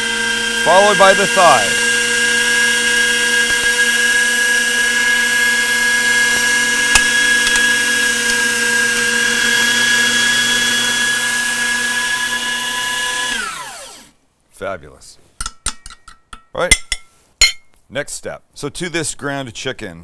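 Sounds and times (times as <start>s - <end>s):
electric meat grinder whining: 0.0s - 14.1s.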